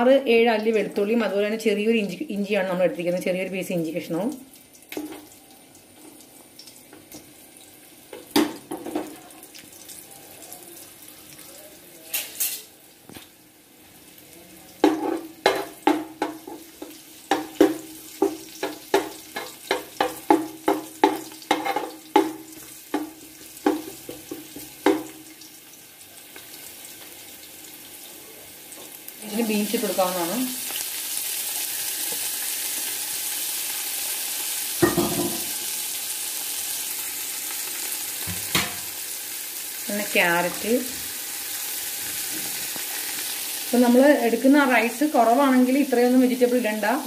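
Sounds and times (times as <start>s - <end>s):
garlic sizzling in oil: 0.0s - 47.0s
utensil tapping and scraping pan: 14.8s - 25.2s.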